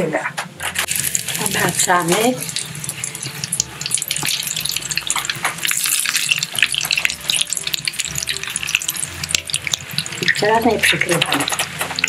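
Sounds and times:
doughnuts deep-frying in oil: 0.8 - 12.0.

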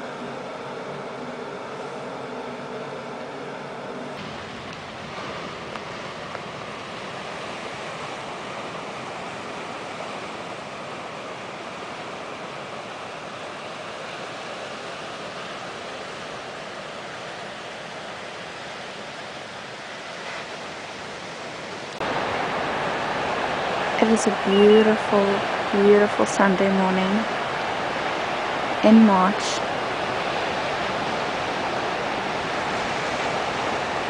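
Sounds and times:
sea waves breaking on rocks: 4.2 - 16.4, 20.0 - 34.0.

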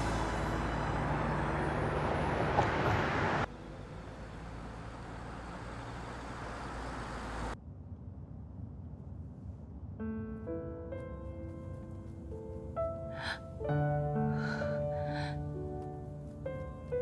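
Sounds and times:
car driving by: 0.0 - 7.6
low hum: 6.5 - 16.6.

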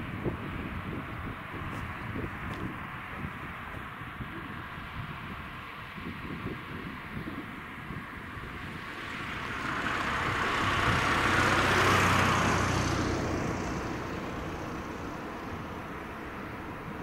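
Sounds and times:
car driving past: 8.6 - 16.8.

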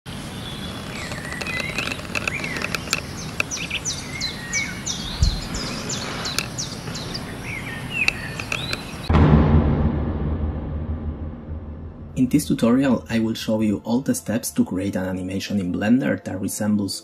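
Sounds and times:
birds singing: 0.1 - 9.1
steady outdoor hiss: 0.1 - 9.1
low thump: 5.1 - 5.7, 9.0 - 13.1.

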